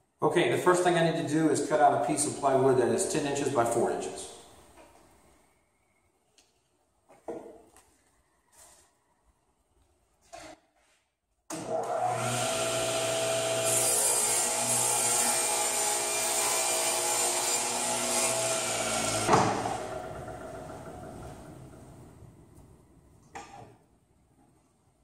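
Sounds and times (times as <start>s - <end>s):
table saw cutting plywood: 11.6s - 21.5s.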